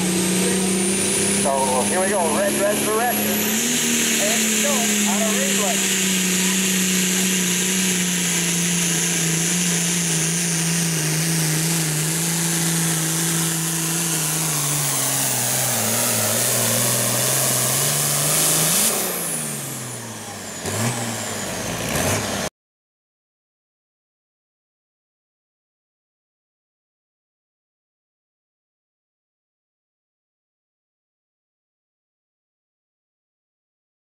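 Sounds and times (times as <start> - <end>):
tractor diesel engine straining: 0.0 - 22.5.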